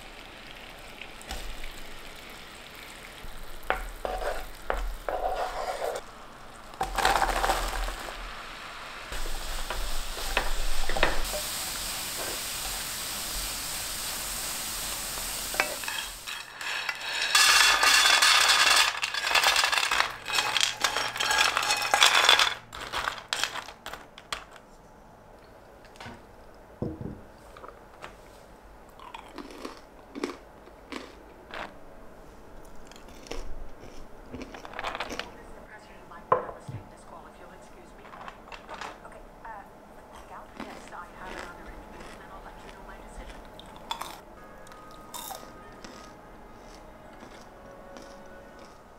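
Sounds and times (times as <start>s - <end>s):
caramel sizzling in a frying pan: 0.0s - 23.4s.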